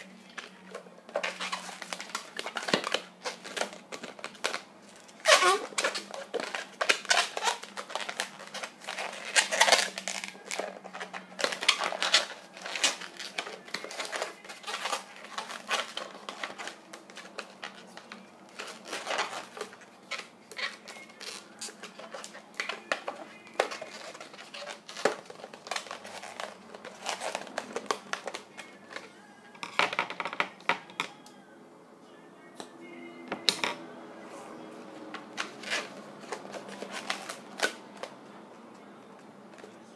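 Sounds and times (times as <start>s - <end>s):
balloon squeaking and rubbing: 1.0s - 28.6s, 35.1s - 37.9s.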